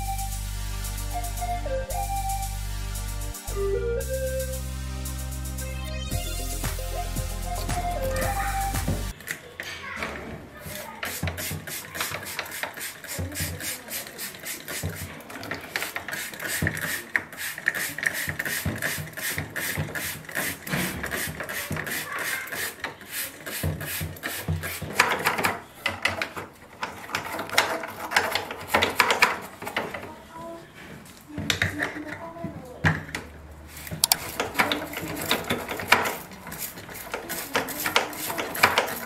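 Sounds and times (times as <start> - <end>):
plastic tool scratching and clicking: 11.0 - 30.1, 33.9 - 39.0.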